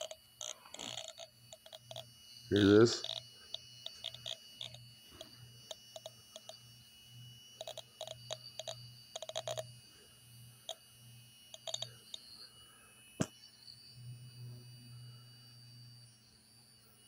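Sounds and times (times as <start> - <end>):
electronic beeps and clicks: 0.8 - 3.2, 3.8 - 6.6, 7.6 - 9.6, 11.5 - 12.0.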